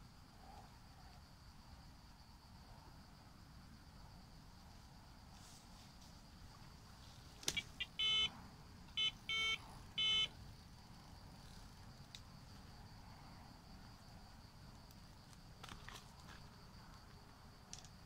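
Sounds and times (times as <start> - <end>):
bite alarm bleeps: 7.5 - 8.3, 9.0 - 10.3.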